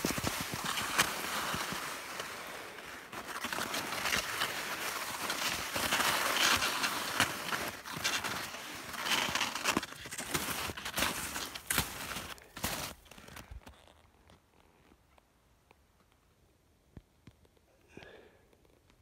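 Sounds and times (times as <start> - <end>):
skis shushing through snow: 0.0 - 14.0.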